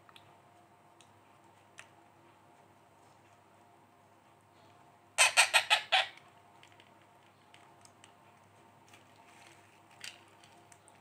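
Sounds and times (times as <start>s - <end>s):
parakeet chick squawking: 5.2s - 6.2s.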